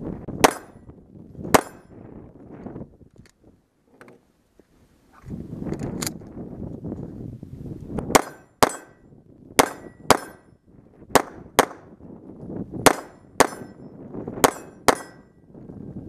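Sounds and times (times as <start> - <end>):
pistol shots: 0.4 - 0.8, 1.5 - 1.8, 8.1 - 8.9, 9.6 - 10.4, 11.1 - 11.8, 12.8 - 13.7, 14.4 - 15.2.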